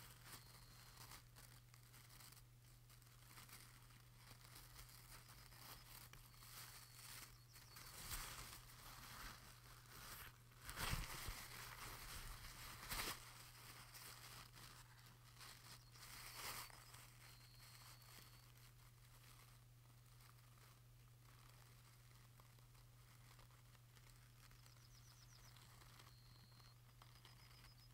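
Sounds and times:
crackles: 0.0s - 27.9s
film soundtrack hum and hiss: 0.0s - 27.9s.

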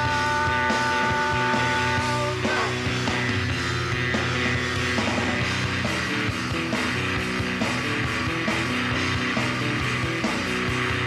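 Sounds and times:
rock music with steady beat: 0.0s - 11.0s.

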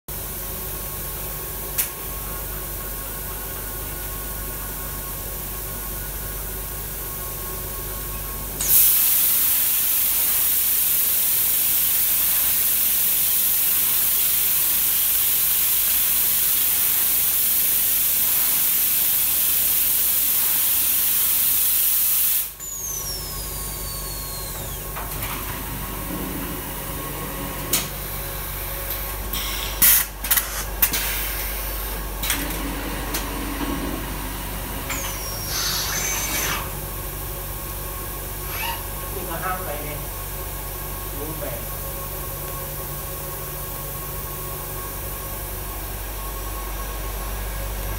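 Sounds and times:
industrial machine hum: 22.5s - 47.9s.

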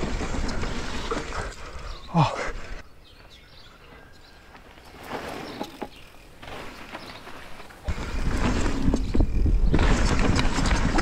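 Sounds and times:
bike tyres rolling on dirt: 0.0s - 11.0s
wind on microphone: 7.9s - 11.0s.

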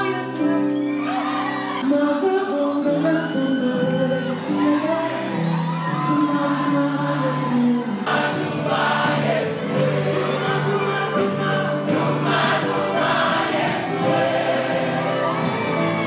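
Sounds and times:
instrumental backing music: 0.0s - 16.0s
choir singing gospel: 7.2s - 16.0s.

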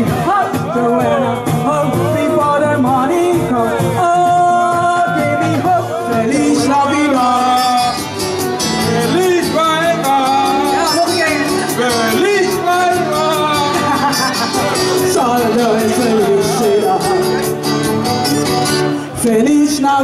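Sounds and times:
person singing into microphone: 0.0s - 20.0s
pop backing track with beat: 0.0s - 20.0s.

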